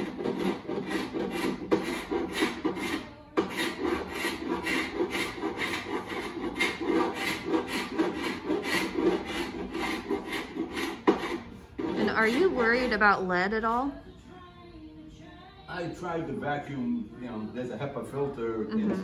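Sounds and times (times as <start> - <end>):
paint scraper scraping wood: 0.0 - 13.1.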